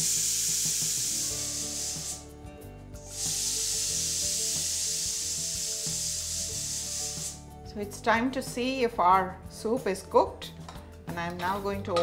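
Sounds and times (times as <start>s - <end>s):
pressure cooker whistle hissing: 0.0s - 2.3s, 3.0s - 7.4s.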